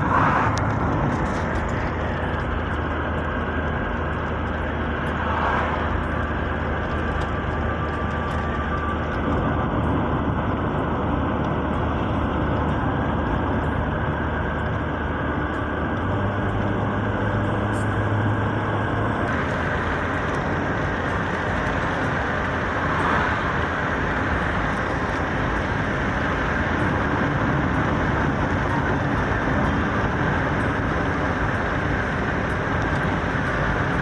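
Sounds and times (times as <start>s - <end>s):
bus road and engine noise: 0.0s - 34.0s
low engine drone: 0.0s - 34.0s.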